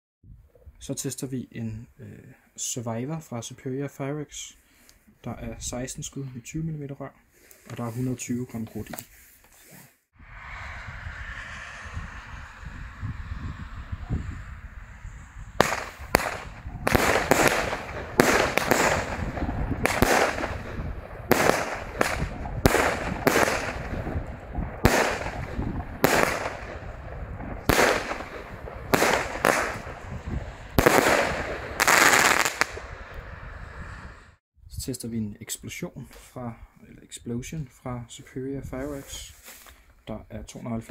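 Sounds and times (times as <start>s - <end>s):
firework bangs: 15.6s - 33.5s.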